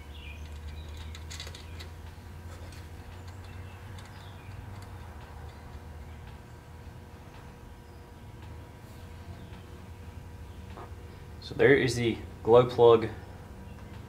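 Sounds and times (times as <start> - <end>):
steady low hum: 0.0 - 14.0
light clicks and taps of metal: 0.4 - 6.4.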